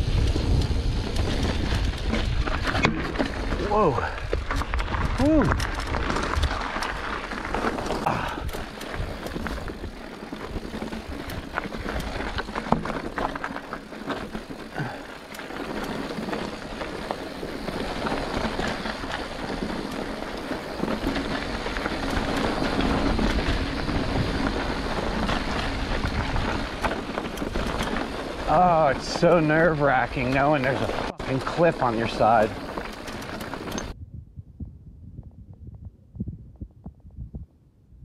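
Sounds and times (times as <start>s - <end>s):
bike tyres crunching on gravel: 0.0s - 34.0s
stones knocking and bike rattle: 0.0s - 34.0s
wind on microphone: 33.4s - 38.0s.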